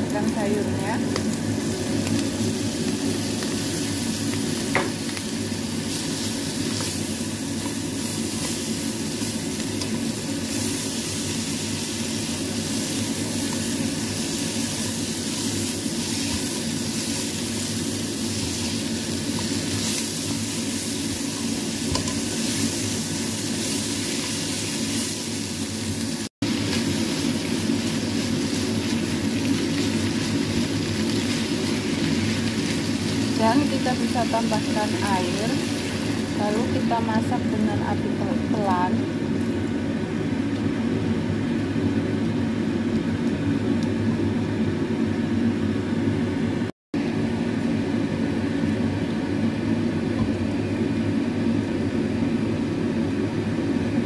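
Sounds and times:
vegetables sizzling in hot oil: 0.0 - 39.9.

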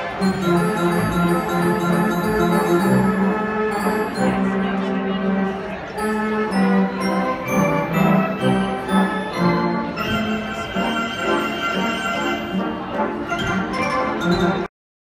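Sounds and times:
pipe organ playing sustained chords: 0.0 - 13.4
organ bass line: 0.2 - 4.7.

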